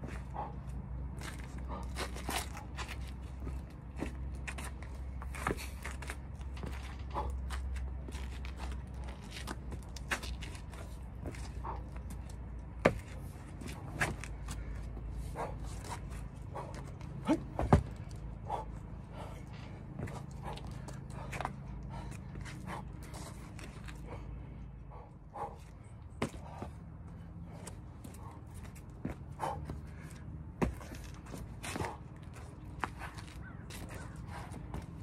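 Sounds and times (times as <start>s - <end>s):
steady low hum: 0.0s - 35.0s
shoes scuffing on stone: 12.8s - 18.6s, 27.6s - 34.9s.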